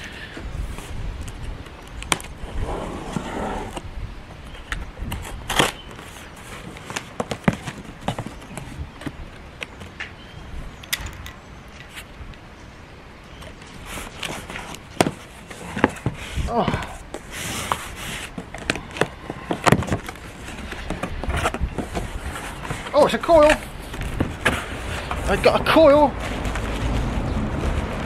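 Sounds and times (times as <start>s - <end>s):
wind on microphone: 0.0s - 6.1s, 15.6s - 28.0s
cardboard box rustling and scraping: 2.3s - 3.8s, 5.2s - 8.9s, 13.6s - 28.0s.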